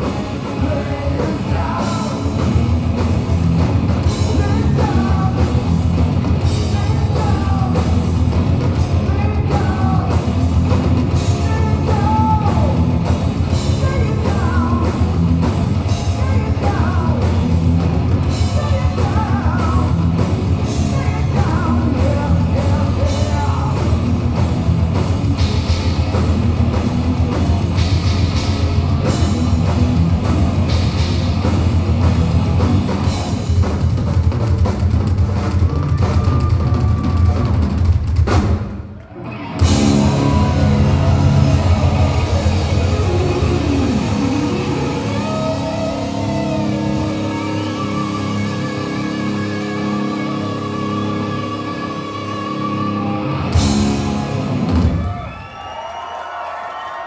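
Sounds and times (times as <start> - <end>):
person singing lead vocal: 0.0 - 2.7, 4.0 - 5.8, 6.4 - 8.1, 8.8 - 10.3, 11.1 - 15.1, 15.9 - 17.5, 18.3 - 24.0, 39.6 - 53.6
distorted electric guitar: 0.0 - 38.1, 39.0 - 55.2
drum kit: 0.0 - 39.0, 39.6 - 55.4
electric bass: 0.0 - 55.2.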